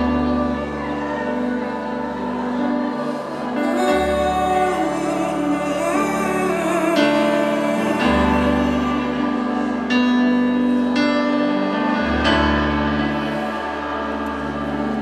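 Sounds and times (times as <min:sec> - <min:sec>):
piano playing slow chords: 0:00.0 - 0:15.0.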